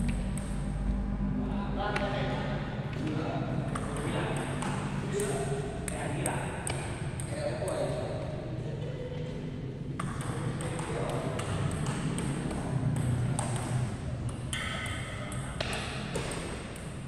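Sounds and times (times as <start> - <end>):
low hall hum: 0.0 - 17.0
table tennis balls clicking: 9.9 - 17.0.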